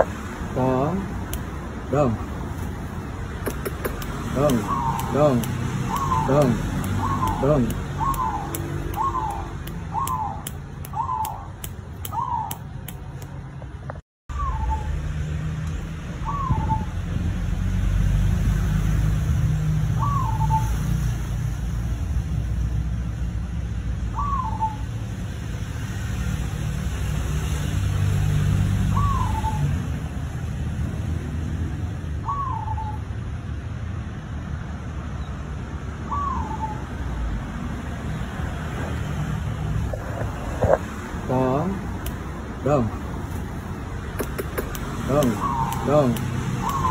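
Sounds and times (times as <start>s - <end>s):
dove cooing: 3.5s - 10.4s, 44.1s - 46.9s.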